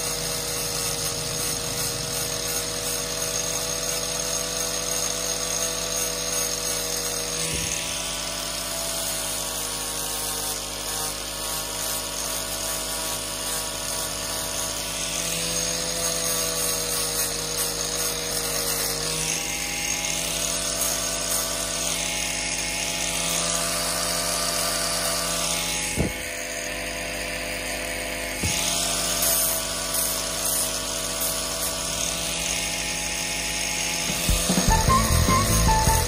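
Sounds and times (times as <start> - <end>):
angle grinder sanding wood: 0.0 - 36.0
background music: 34.1 - 36.0.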